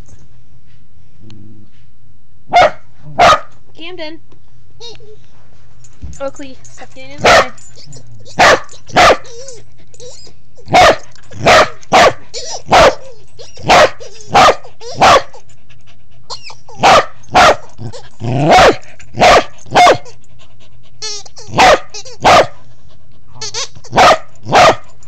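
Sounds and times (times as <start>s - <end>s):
dog barking: 2.5s - 3.6s, 7.2s - 7.6s, 8.4s - 9.3s, 10.7s - 13.0s, 13.6s - 15.3s, 16.8s - 17.7s, 18.4s - 20.0s, 21.5s - 22.6s, 23.9s - 24.8s.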